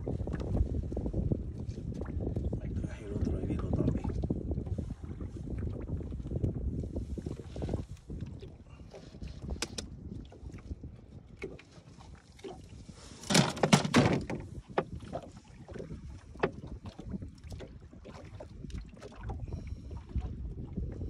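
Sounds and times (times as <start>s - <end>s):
fish knocking and rustling on deck: 9.3s - 9.9s, 12.4s - 16.7s
clattering knocks: 13.3s - 14.4s.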